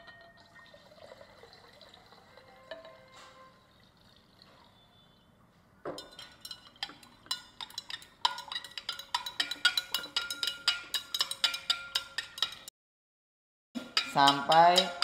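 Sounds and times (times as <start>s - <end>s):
glass rod clinking in glass beaker: 0.0s - 0.8s, 5.9s - 12.7s, 13.8s - 15.0s.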